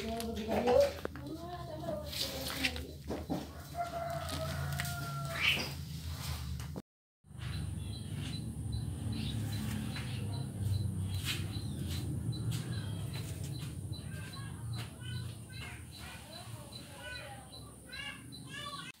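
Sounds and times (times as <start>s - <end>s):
small birds chirping: 7.3s - 19.0s.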